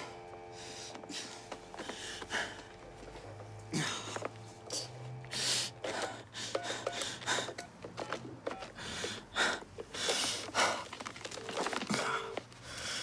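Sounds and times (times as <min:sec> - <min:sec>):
man gasping for breath: 0:00.5 - 0:02.7, 0:03.7 - 0:07.7
telephone keypad beeps: 0:06.5 - 0:08.7.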